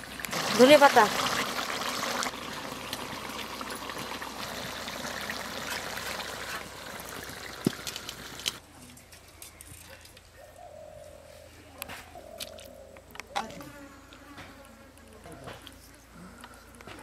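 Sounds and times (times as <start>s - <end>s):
curry simmering and bubbling: 0.0s - 8.6s.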